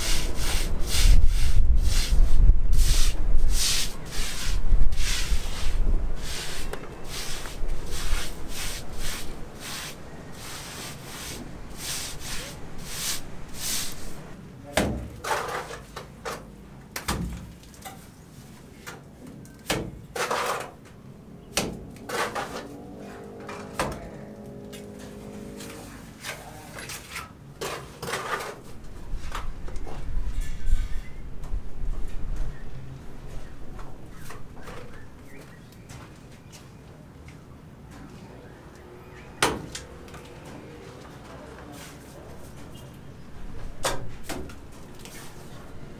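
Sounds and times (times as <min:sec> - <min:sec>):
scraper spreading wet coating: 0:00.0 - 0:14.2
knocks and scrapes: 0:00.0 - 0:16.5, 0:19.7 - 0:21.0, 0:21.6 - 0:31.2.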